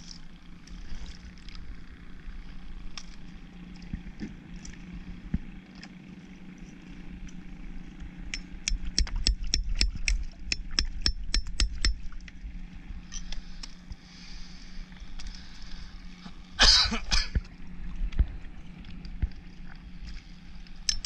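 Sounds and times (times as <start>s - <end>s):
hammer tapping metal tool: 8.7s - 12.0s.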